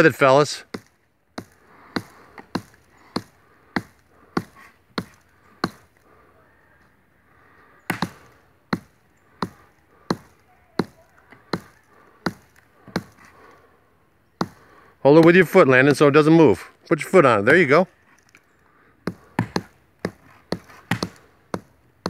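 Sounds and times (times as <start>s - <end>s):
hatchet chopping wood: 0.7s - 5.9s, 7.9s - 13.3s, 14.4s - 14.6s, 19.0s - 22.0s.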